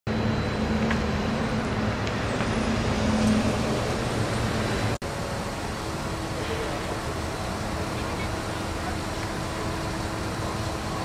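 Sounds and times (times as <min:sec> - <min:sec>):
steady high hum: 0:00.1 - 0:11.0.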